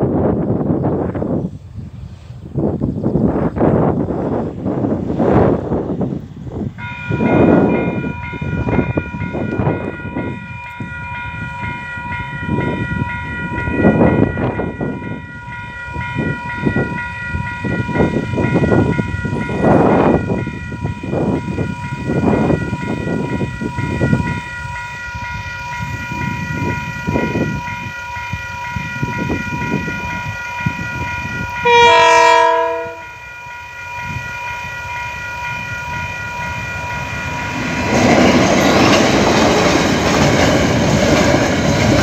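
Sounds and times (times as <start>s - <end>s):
wind buffeting microphone: 0.0s - 33.2s, 33.9s - 42.0s
level crossing alarm bell: 6.8s - 38.2s.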